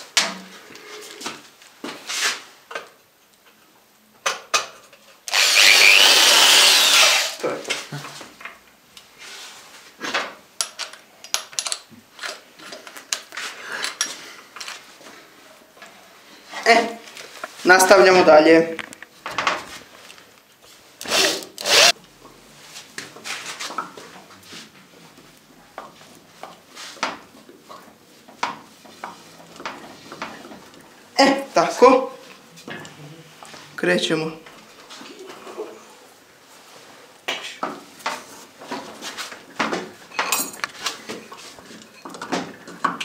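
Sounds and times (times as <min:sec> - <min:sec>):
tool handling clicks and knocks: 0:10.1 - 0:14.8.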